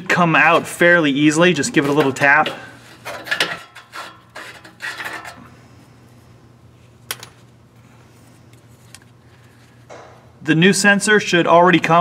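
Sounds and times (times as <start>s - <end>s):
wrench clinking and scraping on metal: 1.7s - 5.5s.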